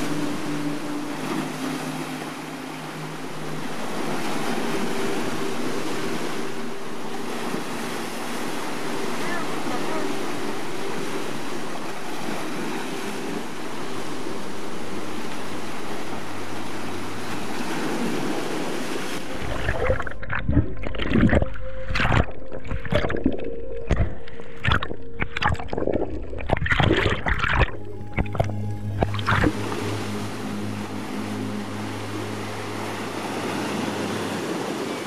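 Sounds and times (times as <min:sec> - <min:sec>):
muffled underwater rumble: 0:00.0 - 0:33.6
surf washing over rocks: 0:00.0 - 0:35.0
wind on microphone: 0:00.0 - 0:35.0
underwater gurgling and knocks: 0:19.3 - 0:29.7.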